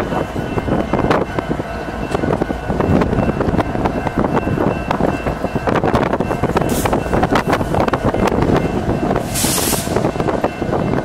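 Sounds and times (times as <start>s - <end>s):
diesel locomotive engines rumbling: 0.0s - 11.0s
wind buffeting microphone: 0.0s - 11.0s
brief hiss: 9.3s - 10.0s.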